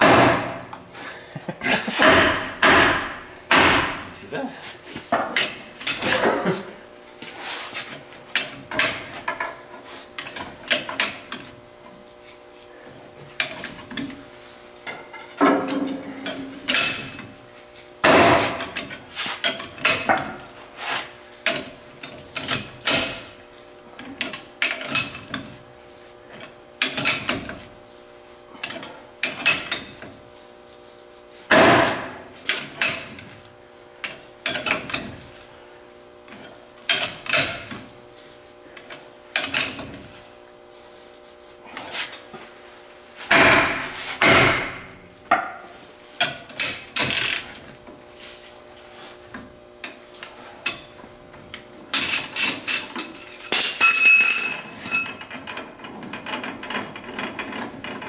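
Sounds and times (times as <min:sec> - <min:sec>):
steel tools clanking: 0:14.8 - 0:17.3, 0:50.6 - 0:58.0.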